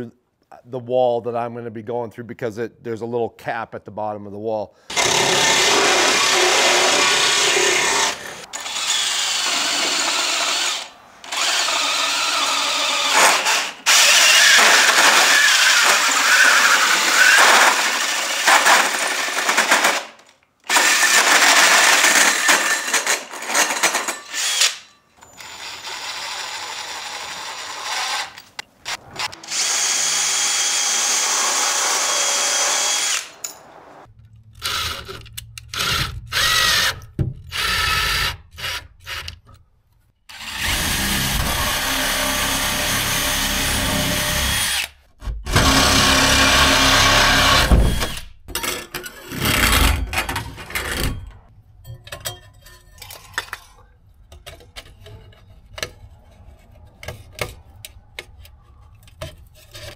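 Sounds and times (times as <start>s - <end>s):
hole saw boring into wood: 4.9s - 19.6s, 29.2s - 33.4s
hole saw cutting sheet metal: 4.9s - 20.0s.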